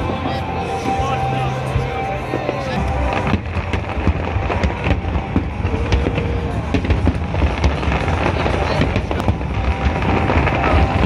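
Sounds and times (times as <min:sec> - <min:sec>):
fireworks bursting and crackling: 0:00.0 - 0:11.0
low rumble of booms: 0:02.4 - 0:11.0.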